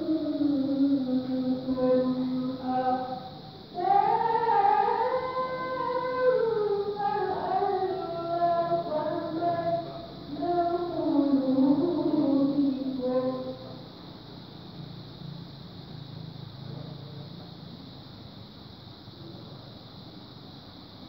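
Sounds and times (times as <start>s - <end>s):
woman chanting a recitation: 0.0s - 14.5s.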